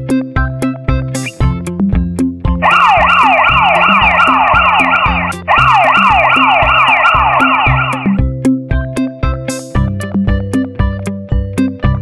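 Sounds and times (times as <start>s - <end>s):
background music with steady beat: 0.0s - 12.0s
emergency siren wailing: 2.6s - 8.2s.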